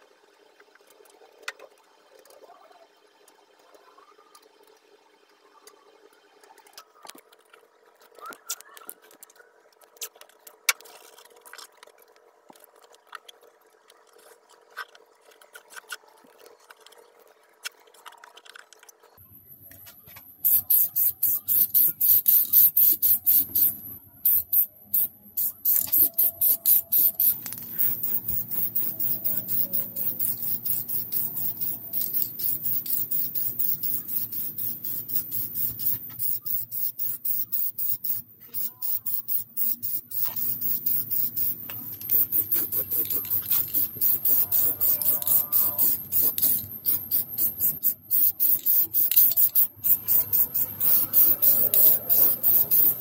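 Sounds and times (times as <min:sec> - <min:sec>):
spray can hissing: 0:20.4 - 0:53.0.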